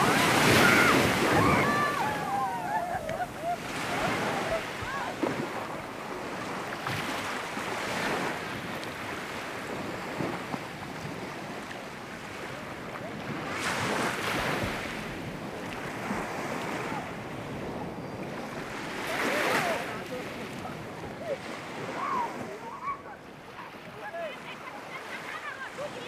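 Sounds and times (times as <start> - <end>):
sea water splashing in shallows: 0.0 - 20.6
wind buffeting microphone: 0.0 - 22.6.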